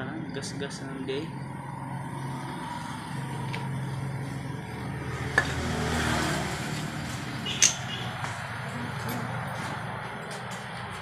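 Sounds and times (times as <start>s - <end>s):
sharp knocks of metal fork legs: 7.5s - 8.4s.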